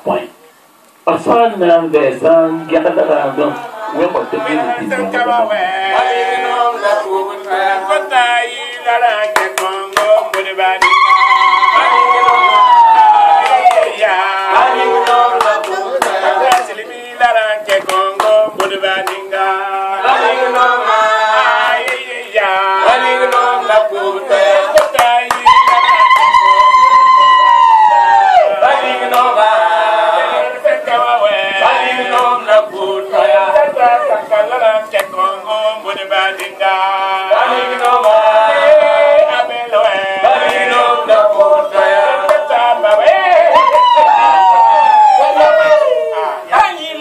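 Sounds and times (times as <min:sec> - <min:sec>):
group singing: 0:02.6 - 0:47.0
rhythmic hand clapping: 0:08.7 - 0:11.0, 0:13.4 - 0:16.8, 0:17.6 - 0:19.4, 0:21.7 - 0:22.3, 0:22.9 - 0:26.4, 0:29.0 - 0:29.4, 0:32.1 - 0:32.5, 0:34.9 - 0:35.4, 0:36.2 - 0:36.8, 0:37.4 - 0:38.5, 0:39.8 - 0:43.6.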